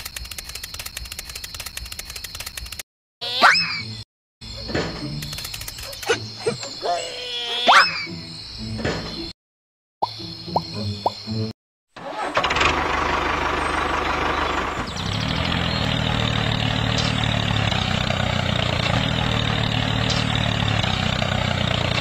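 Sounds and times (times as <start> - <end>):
tractor engine idling: 12.0 - 22.0.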